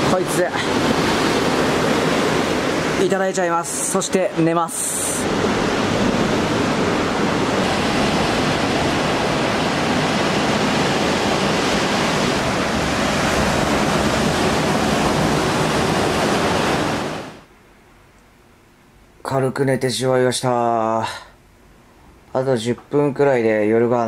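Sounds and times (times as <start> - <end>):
ocean surf washing against rocks: 0.0 - 17.5.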